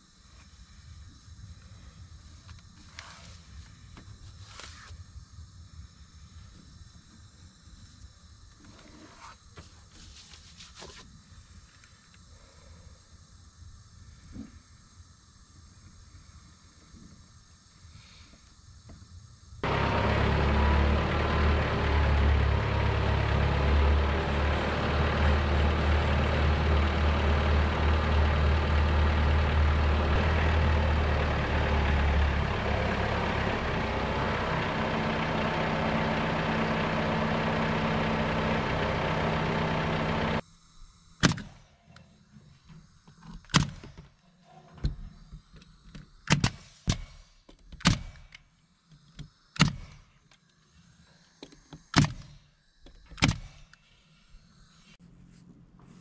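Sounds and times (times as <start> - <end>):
tractor diesel engine running: 19.6 - 40.4
pneumatic nailer firing: 41.2 - 41.7, 43.5 - 44.0, 46.0 - 48.5, 49.5 - 50.1, 51.8 - 52.4, 53.0 - 53.7.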